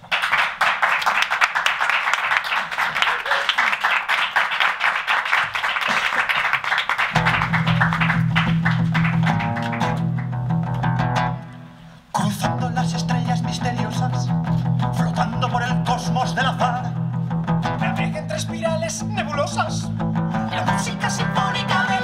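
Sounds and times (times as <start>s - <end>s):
audience applauding: 0.0s - 10.6s
acoustic guitar: 7.1s - 22.0s
plucked notes: 7.2s - 12.8s.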